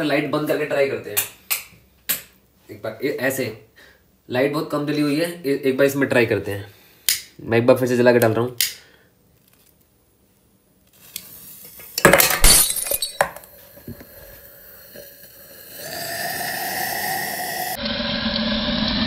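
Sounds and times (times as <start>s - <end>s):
smoke charge hissing: 14.4s - 19.0s.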